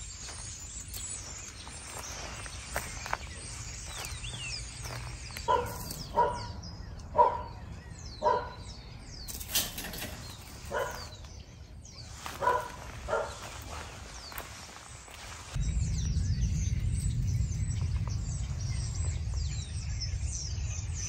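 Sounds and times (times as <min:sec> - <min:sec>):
dog barking: 0:05.5 - 0:07.6, 0:08.2 - 0:08.7, 0:10.7 - 0:11.2, 0:12.3 - 0:14.0.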